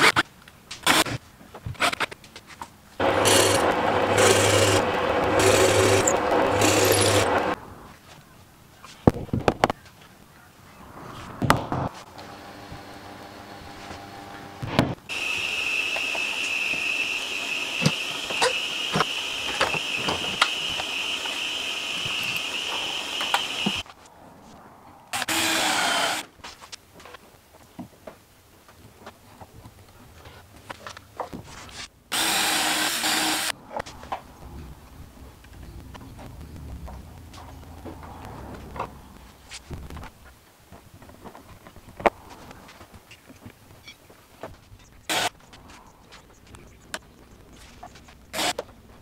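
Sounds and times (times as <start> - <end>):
cordless drill bursts: 3.0 - 7.5, 15.1 - 23.8, 25.1 - 26.2, 32.1 - 33.5, 45.1 - 45.3, 48.3 - 48.6
whirring machine with high whine: 3.0 - 7.6, 12.1 - 23.9.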